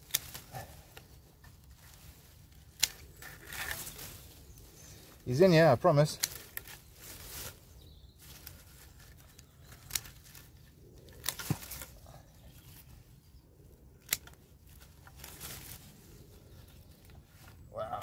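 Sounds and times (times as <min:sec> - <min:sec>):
secateurs snipping stems: 0:00.0 - 0:04.0, 0:06.0 - 0:06.9, 0:08.3 - 0:12.1, 0:14.0 - 0:15.8
rustle of leafy stems: 0:00.0 - 0:18.0.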